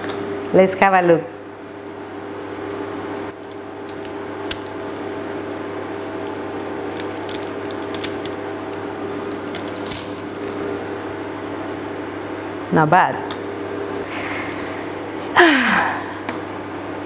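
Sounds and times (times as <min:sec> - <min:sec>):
steady hum: 0:00.0 - 0:17.0
paper crinkling: 0:03.4 - 0:10.8.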